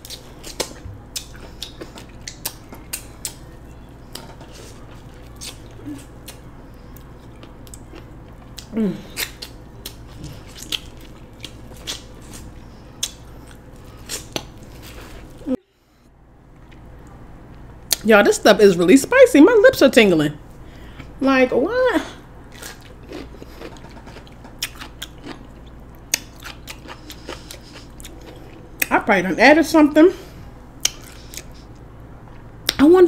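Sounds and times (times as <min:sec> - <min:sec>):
chewing: 0:00.0 - 0:03.5, 0:04.1 - 0:15.5, 0:22.5 - 0:28.9, 0:30.8 - 0:32.8.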